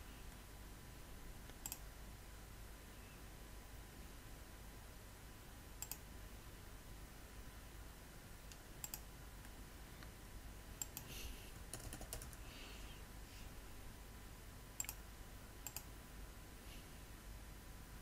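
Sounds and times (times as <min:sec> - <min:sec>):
faint low hum: 0:00.0 - 0:18.0
computer mouse clicks: 0:01.5 - 0:01.9, 0:05.8 - 0:06.1, 0:08.5 - 0:10.1, 0:10.8 - 0:12.4, 0:14.8 - 0:15.0, 0:15.6 - 0:15.9
keyboard keystrokes: 0:05.8 - 0:06.0, 0:10.8 - 0:12.4, 0:15.6 - 0:15.9.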